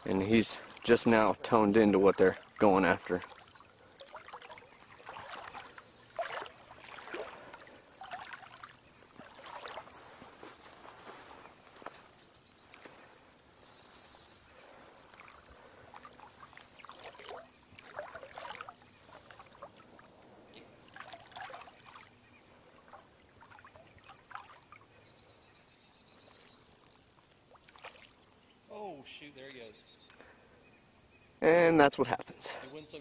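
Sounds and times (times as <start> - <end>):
light water splashes: 0.0 - 25.0, 26.2 - 28.5
water trickling and lapping: 0.0 - 28.7.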